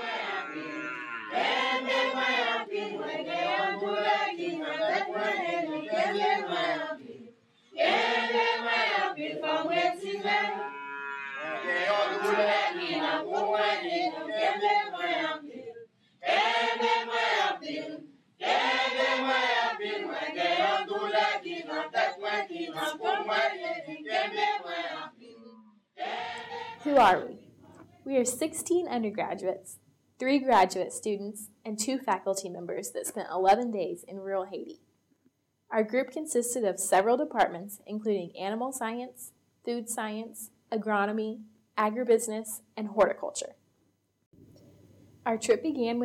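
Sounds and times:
group singing together: 0:00.0 - 0:27.8.

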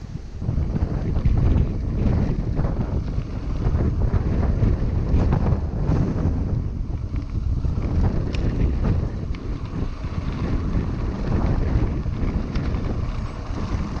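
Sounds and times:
bike tyres rumbling on gravel: 0:00.0 - 0:14.0
wind buffeting microphone: 0:00.0 - 0:14.0
sharp clicks and ticks: 0:06.9 - 0:09.6.

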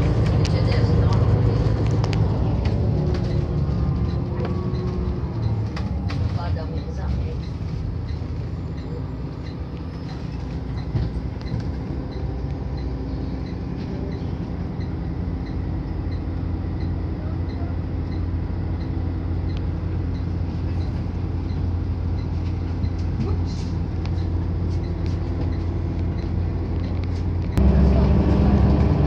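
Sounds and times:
bus engine drone: 0:00.0 - 0:29.0
faint high beeps: 0:06.8 - 0:10.1.

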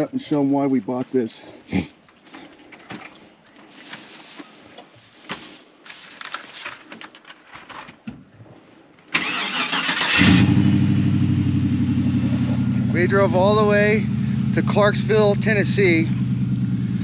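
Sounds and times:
faint clicks and rustling: 0:02.0 - 0:09.1
starter cranking: 0:09.2 - 0:10.4
engine idling loudly: 0:10.2 - 0:17.0.

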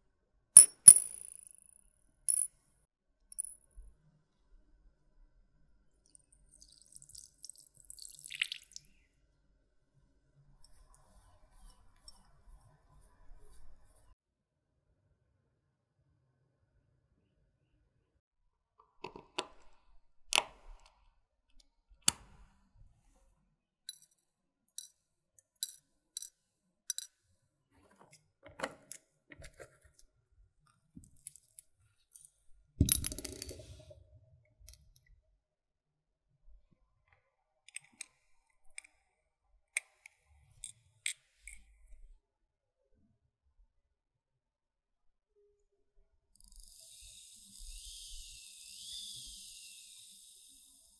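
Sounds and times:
tweezers and tools clinking: 0:23.9 - 0:27.2.

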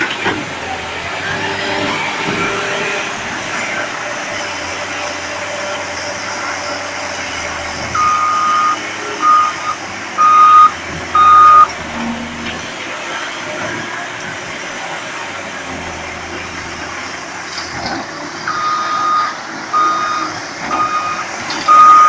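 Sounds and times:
diesel engine running: 0:00.0 - 0:22.0
reversing alarm beeping: 0:03.7 - 0:12.5, 0:18.5 - 0:22.0.

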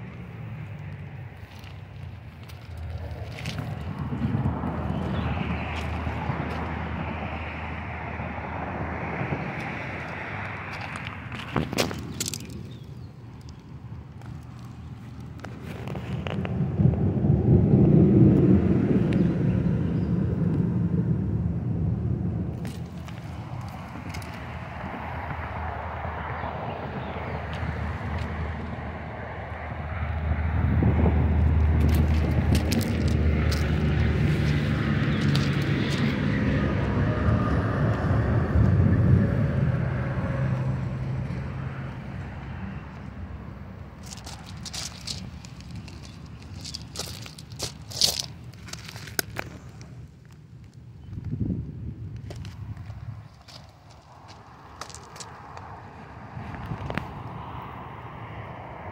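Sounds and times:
low rumble: 0:00.0 - 0:11.6, 0:13.8 - 0:50.4
sharp crunching clicks: 0:44.0 - 0:51.2.

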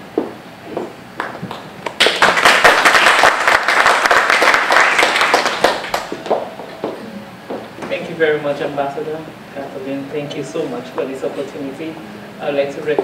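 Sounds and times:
audience applauding: 0:01.2 - 0:06.8.

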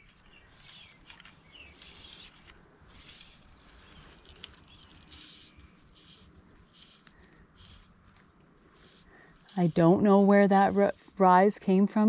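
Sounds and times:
bird chirps: 0:00.0 - 0:07.4
soft hissy rustles: 0:00.0 - 0:11.9.

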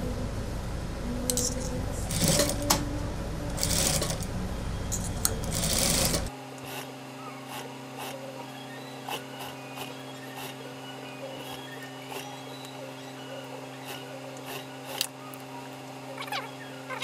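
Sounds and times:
sewing machine stitching: 0:02.0 - 0:02.8, 0:03.5 - 0:04.3, 0:04.9 - 0:06.3.

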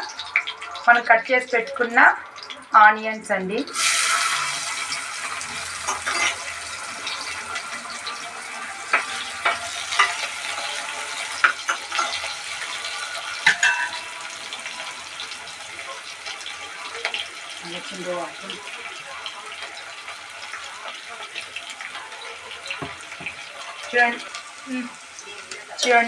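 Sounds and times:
onions sizzling in oil: 0:00.0 - 0:26.0
spoon clinking against pot: 0:08.9 - 0:10.3, 0:13.4 - 0:14.1.

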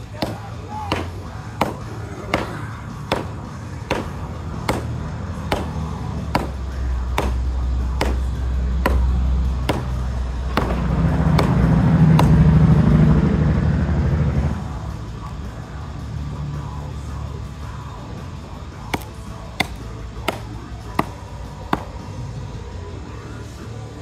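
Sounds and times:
background music: 0:00.0 - 0:24.0
hatchet chopping into a log: 0:00.2 - 0:10.8, 0:11.4 - 0:12.4, 0:18.9 - 0:21.9.

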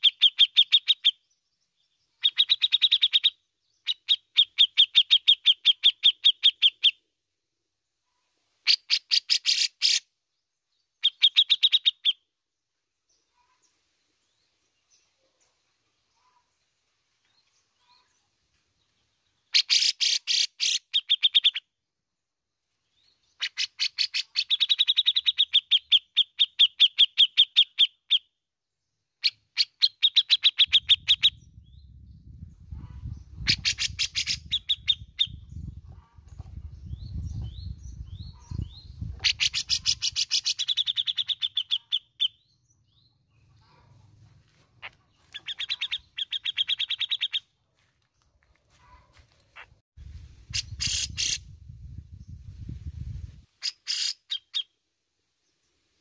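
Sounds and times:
bulbul chattering song: 0:00.0 - 0:01.2, 0:02.2 - 0:07.0, 0:11.0 - 0:12.3, 0:19.5 - 0:21.7, 0:23.4 - 0:28.3, 0:29.2 - 0:32.0, 0:32.6 - 0:42.5, 0:44.8 - 0:47.5, 0:50.3 - 0:51.6
low rumble: 0:31.4 - 0:33.5.

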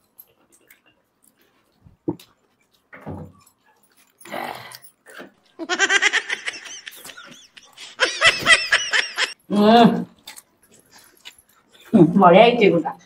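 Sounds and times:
woman giggling: 0:05.6 - 0:09.4.

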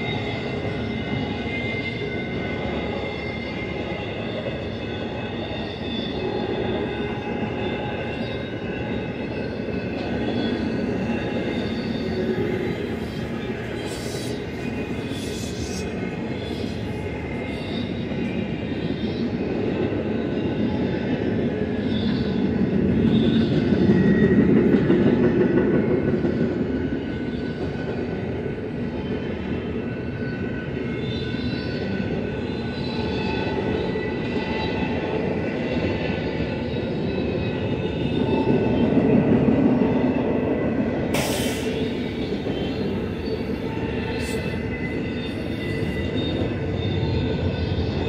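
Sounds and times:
high wheel squeal: 0:00.0 - 0:24.4, 0:41.0 - 0:48.0
steel wheels rumbling on rail: 0:00.0 - 0:48.0.

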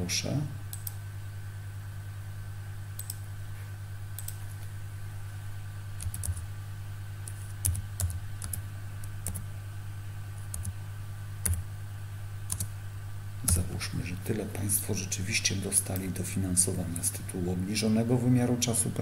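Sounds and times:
steady low hum: 0:00.0 - 0:19.0
keyboard keys tapping: 0:06.0 - 0:06.4, 0:07.3 - 0:08.6, 0:09.2 - 0:09.4, 0:11.4 - 0:11.6.

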